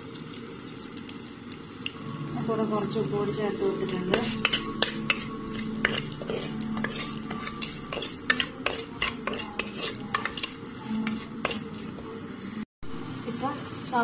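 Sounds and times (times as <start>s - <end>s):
vegetables sizzling in oil: 0.0s - 14.0s
spatula knocking and scraping pot: 3.9s - 12.0s.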